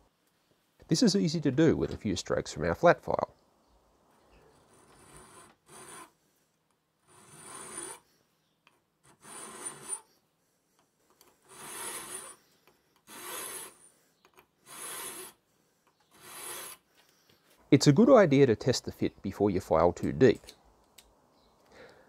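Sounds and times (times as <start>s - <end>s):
file filing steel: 4.7s - 6.2s, 7.0s - 8.0s, 9.0s - 10.1s, 11.4s - 12.4s, 13.1s - 13.9s, 14.6s - 15.4s, 16.1s - 16.8s.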